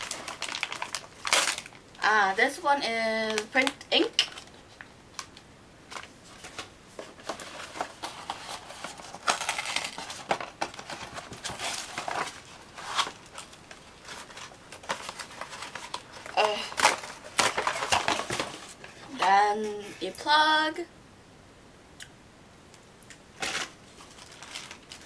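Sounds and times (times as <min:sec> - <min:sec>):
foil pouch crinkling: 0:00.0 - 0:01.8, 0:05.9 - 0:19.2, 0:23.4 - 0:25.0
cardboard box rustles and taps: 0:16.8 - 0:18.8.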